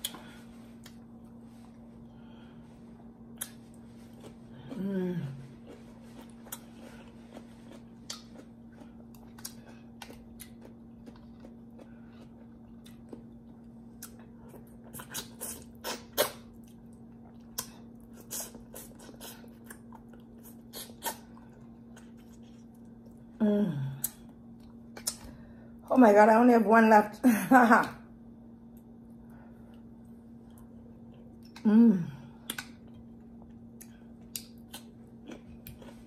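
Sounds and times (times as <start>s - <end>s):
low hum: 0.0s - 15.7s
chewing and sucking: 5.4s - 13.3s, 14.0s - 22.9s.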